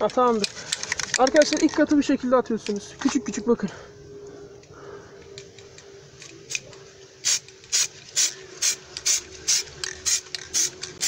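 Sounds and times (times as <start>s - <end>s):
aerosol spray bursts: 7.2s - 10.8s.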